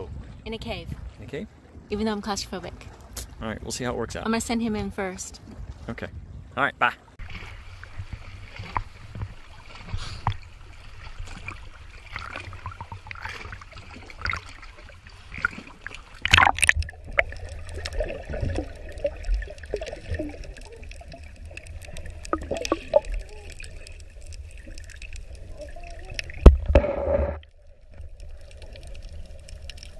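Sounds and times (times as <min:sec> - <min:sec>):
water sloshing and splashing: 0:00.0 - 0:03.8, 0:04.6 - 0:06.5, 0:07.1 - 0:29.9
underwater bubbling and clicks: 0:07.2 - 0:29.9
water gurgling: 0:07.2 - 0:29.9.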